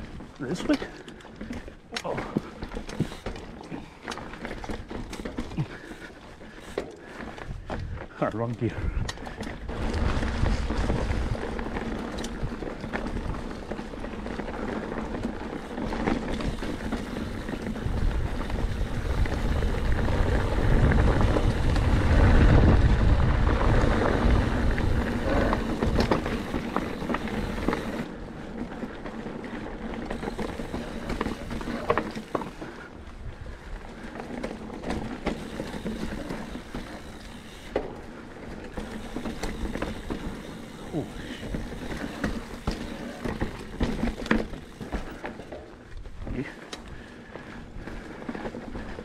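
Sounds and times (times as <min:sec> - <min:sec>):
bike rattling and knocking: 0:00.0 - 0:32.9, 0:33.6 - 0:49.0
bike tyres on rocky trail: 0:00.0 - 0:49.0
wind rumbling on microphone: 0:07.3 - 0:37.8.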